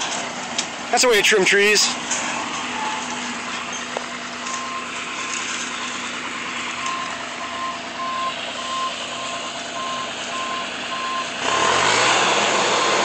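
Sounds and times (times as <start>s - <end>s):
skid steer engine running: 0.0s - 13.0s
backup alarm beeps: 4.5s - 4.9s, 6.8s - 11.7s.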